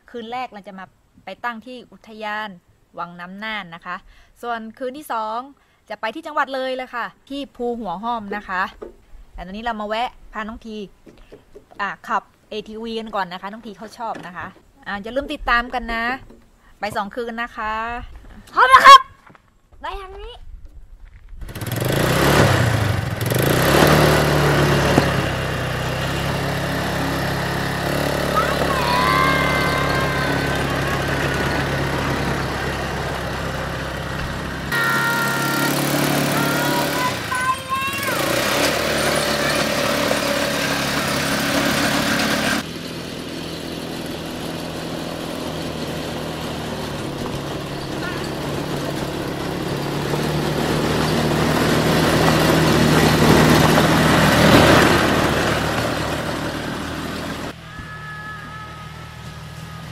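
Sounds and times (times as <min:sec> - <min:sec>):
quad bike engine humming: 0:21.4 - 0:59.9
engine whine: 0:21.5 - 0:59.9.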